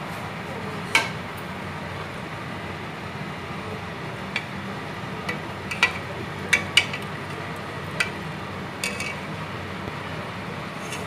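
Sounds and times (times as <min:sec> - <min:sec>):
spoon clinking in metal pot: 0:08.8 - 0:09.2.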